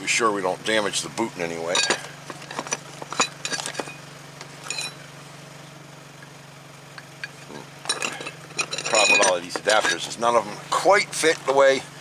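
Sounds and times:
steady low hum: 0.0s - 12.0s
metal cups clinking: 1.7s - 4.0s, 4.6s - 5.0s, 7.0s - 10.2s.

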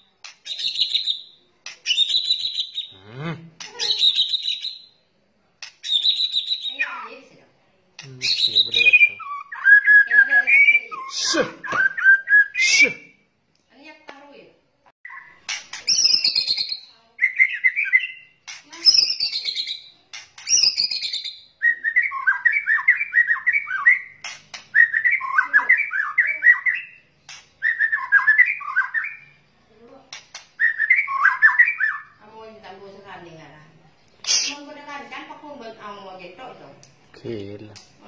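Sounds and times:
fast bird chattering: 0.0s - 3.0s, 3.6s - 4.8s, 5.6s - 7.2s, 8.0s - 11.4s, 15.1s - 29.3s, 34.2s - 34.9s
falling whistled bird notes: 8.2s - 13.0s, 15.1s - 27.0s, 27.6s - 29.3s, 30.6s - 32.2s.

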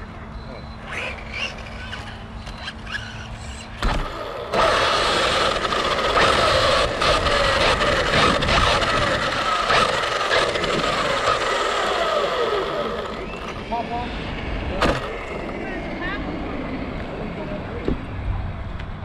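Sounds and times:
tyres on dirt: 0.0s - 16.1s
toy car motor whine: 0.5s - 13.6s.

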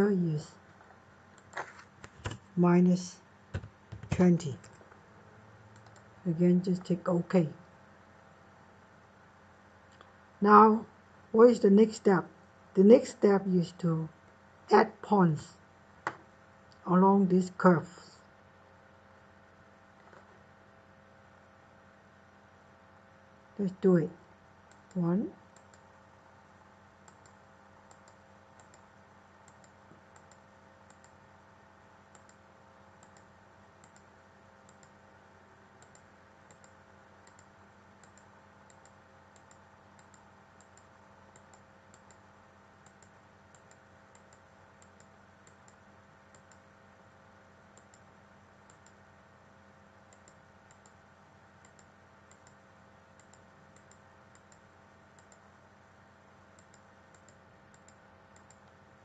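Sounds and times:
computer mouse clicks: 1.4s - 2.4s, 5.8s - 6.1s, 24.7s - 25.9s, 27.0s - 31.2s, 32.1s - 35.0s, 35.8s - 46.7s, 47.7s - 49.0s, 50.1s - 51.0s, 51.6s - 55.5s, 56.5s - 58.8s.

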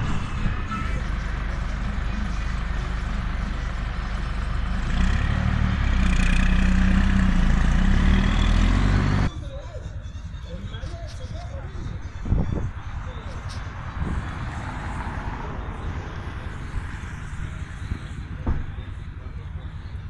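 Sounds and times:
coach engine idling: 0.0s - 13.9s.

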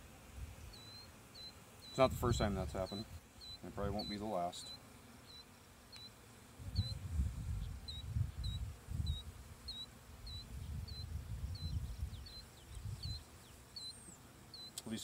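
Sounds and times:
honey bees buzzing: 0.0s - 15.0s
low gusty rumble: 6.6s - 9.2s.

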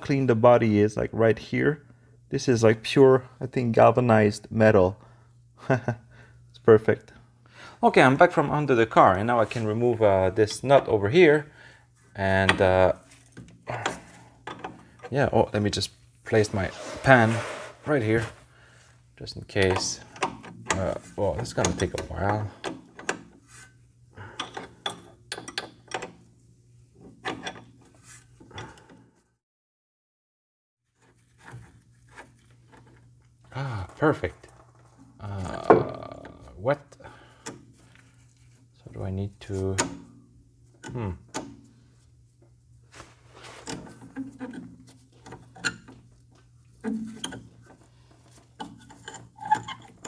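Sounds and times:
metallic clicks and rattles: 24.4s - 26.2s, 46.8s - 50.0s.

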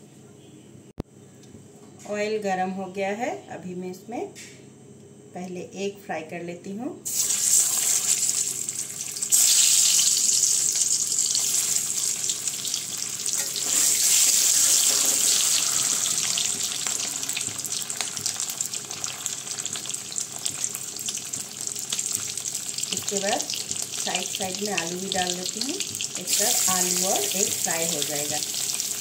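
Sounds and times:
eggs sizzling in hot oil: 7.1s - 29.0s.

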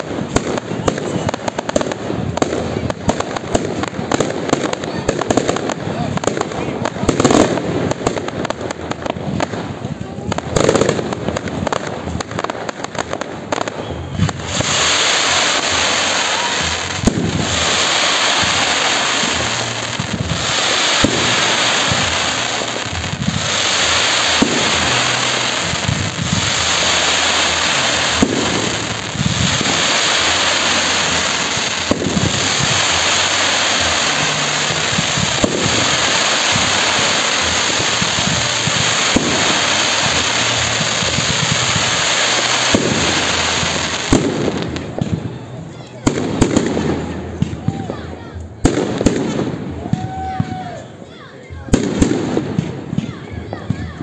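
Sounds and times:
fireworks bangs: 0.0s - 54.0s
fireworks crackling hiss: 0.0s - 54.0s.

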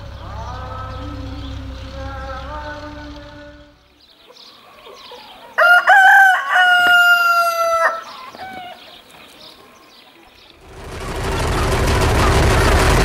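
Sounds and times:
rooster crowing: 4.4s - 8.9s.

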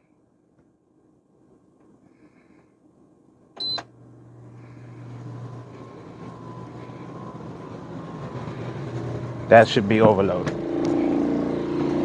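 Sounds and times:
low hum: 1.1s - 12.0s
short sharp beep: 3.6s - 3.8s
generator engine speeding up: 3.9s - 12.0s.

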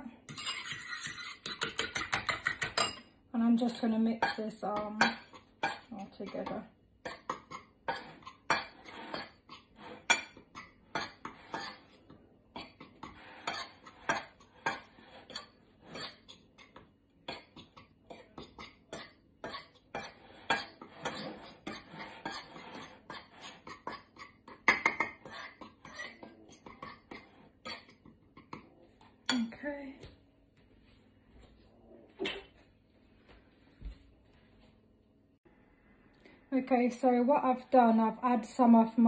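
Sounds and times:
fork scraping a plate: 0.3s - 3.0s, 3.7s - 28.7s.

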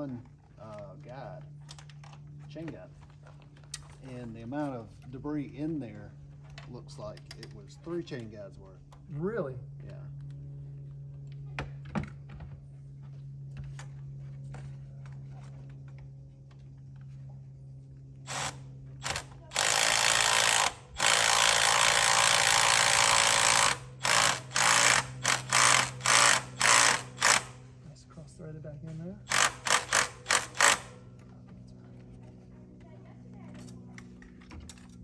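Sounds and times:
steady low hum: 0.0s - 35.0s
power tool running in bursts: 18.2s - 27.8s, 29.2s - 31.1s.

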